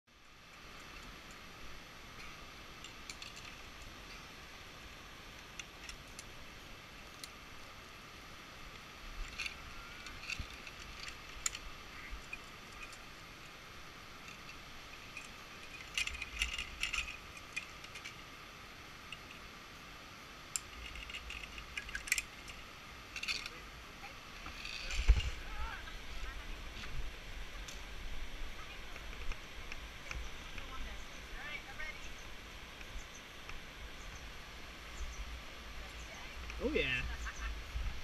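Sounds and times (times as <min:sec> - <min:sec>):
faint hiss: 0:00.1 - 0:38.0
metal harness gear clinking: 0:02.8 - 0:04.3, 0:09.2 - 0:18.3, 0:20.6 - 0:23.6, 0:24.4 - 0:25.4.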